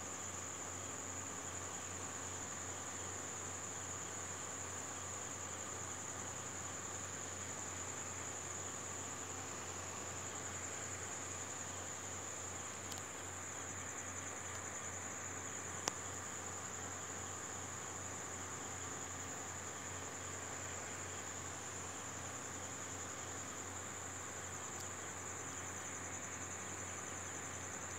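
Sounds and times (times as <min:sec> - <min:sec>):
crickets chirping: 0:00.0 - 0:27.9.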